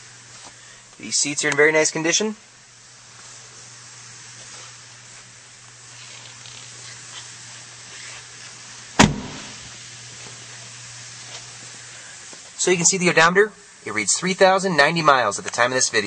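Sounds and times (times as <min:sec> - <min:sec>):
low hum and hiss: 0:00.0 - 0:16.0
car door shutting: 0:09.0 - 0:09.6.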